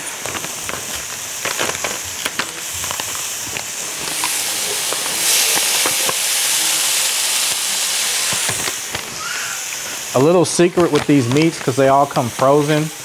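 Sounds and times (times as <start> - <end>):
meat sizzling in hot oil: 0.0 - 13.0.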